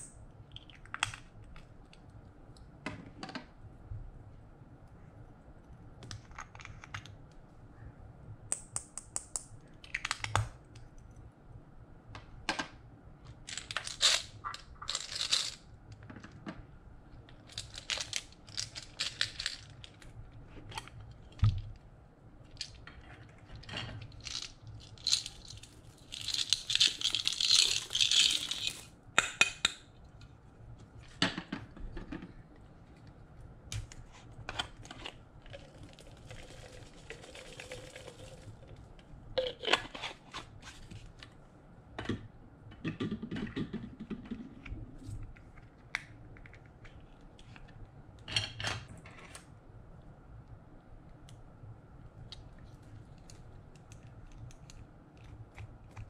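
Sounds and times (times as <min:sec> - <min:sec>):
beads rattling out: 0:13.8 - 0:15.6, 0:24.1 - 0:28.9.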